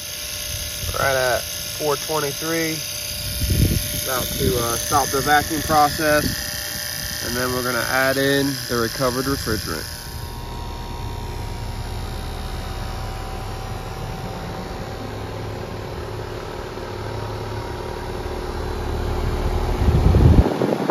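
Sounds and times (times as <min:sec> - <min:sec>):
vacuum pump humming: 0:00.0 - 0:20.9.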